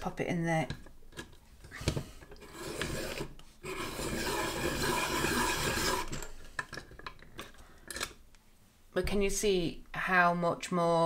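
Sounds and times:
sharpener shaving pencil wood: 2.4s - 6.3s.

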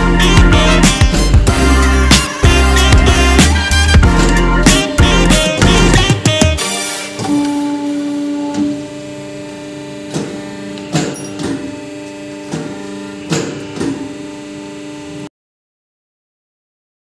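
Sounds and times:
sustained music notes: 0.0s - 10.8s.

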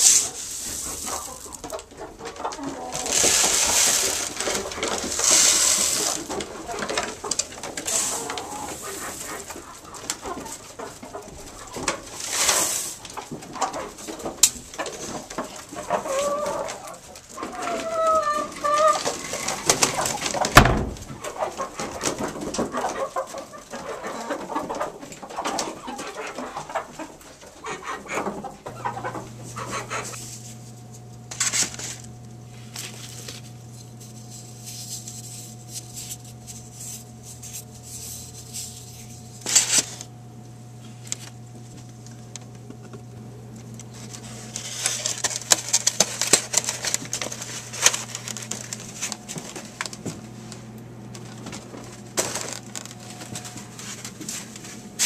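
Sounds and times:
egg carton clicks and clatter: 0.0s - 30.0s, 43.6s - 50.4s
hens clucking: 0.0s - 31.3s
steady low hum: 28.4s - 55.0s.

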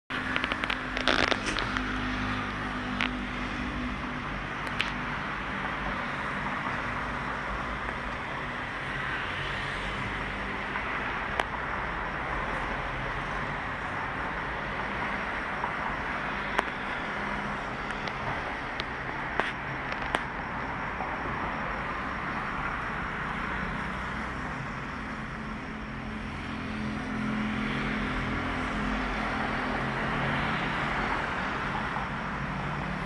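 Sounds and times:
street traffic: 0.1s - 33.0s.

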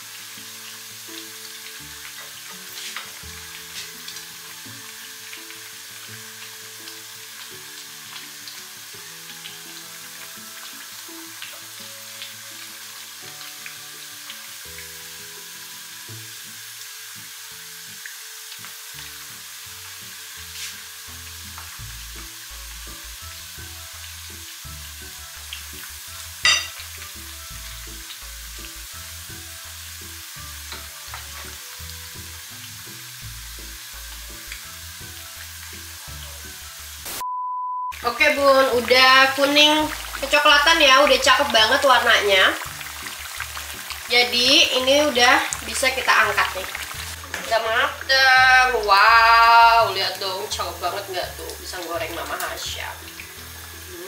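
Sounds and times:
fritters sizzling in hot oil: 0.0s - 37.2s, 38.0s - 54.0s.

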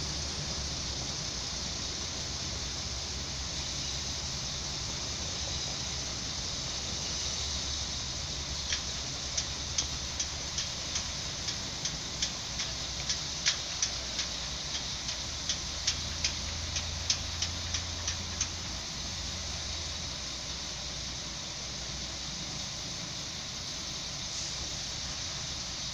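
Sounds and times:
train engine idling hum: 0.0s - 25.9s
rapid sharp clicks: 8.5s - 18.6s.

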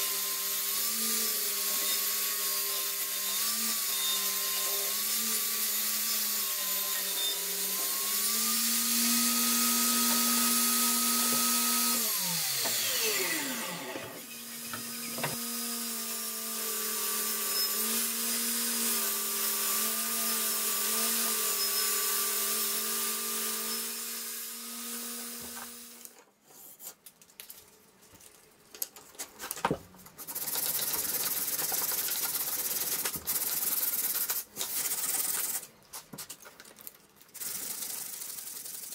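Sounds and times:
table saw ripping wood: 5.1s - 16.0s
saw winding down: 6.8s - 19.1s
sandpaper rubbing on wood: 30.2s - 35.6s, 37.4s - 38.9s.

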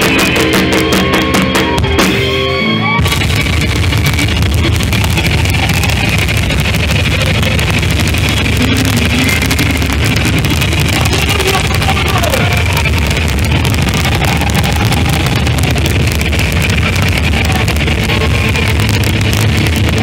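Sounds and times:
electric guitar solo: 0.0s - 7.8s
live rock band: 0.0s - 20.0s.

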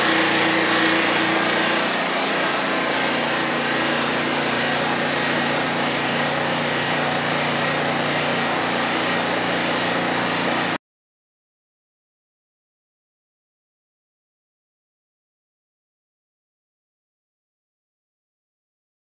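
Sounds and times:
screening machine motor hum: 0.0s - 10.8s.

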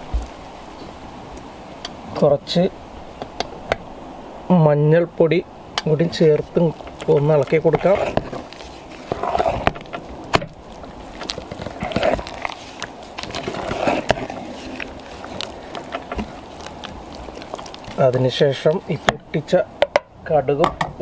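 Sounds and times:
spoon mashing thick tapioca: 5.8s - 19.5s.

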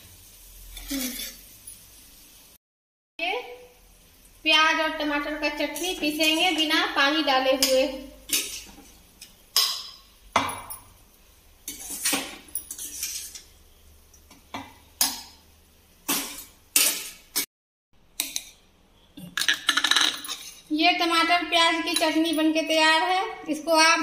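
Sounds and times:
metal spatula scraping a pan: 0.7s - 1.5s, 5.7s - 9.9s, 11.6s - 13.6s, 16.1s - 17.5s, 20.2s - 20.7s.

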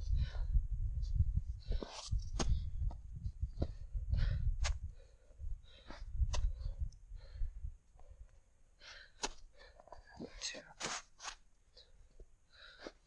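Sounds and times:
wind buffeting microphone: 0.0s - 7.8s
person breathing hard: 3.6s - 10.4s, 11.8s - 13.0s.

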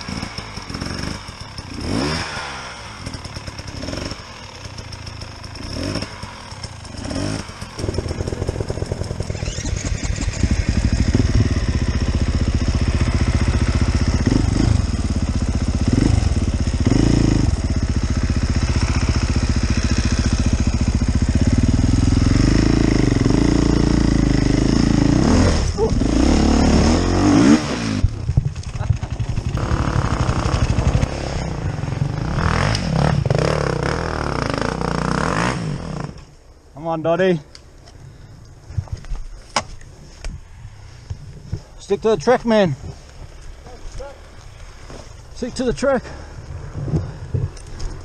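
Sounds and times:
motorcycle revving in bursts: 0.0s - 36.2s
dirt bike engine throttle blips: 0.0s - 36.3s.

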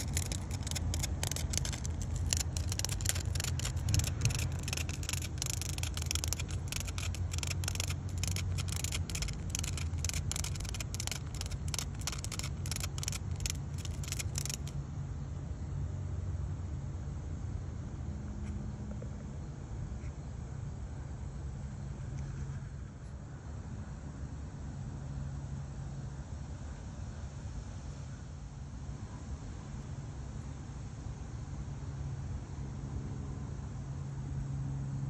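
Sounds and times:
cicada buzzing and fluttering: 0.0s - 14.8s
steady low rumble: 0.0s - 14.8s.

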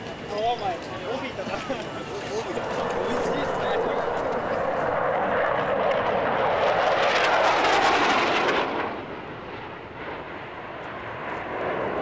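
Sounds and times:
fighter jets roaring overhead: 0.0s - 12.0s.

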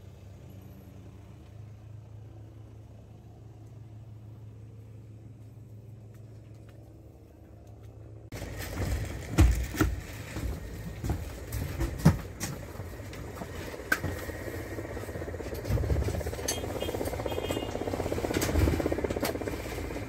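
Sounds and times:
low steady hum: 0.0s - 20.0s
footsteps in aircraft cabin: 5.4s - 20.0s.

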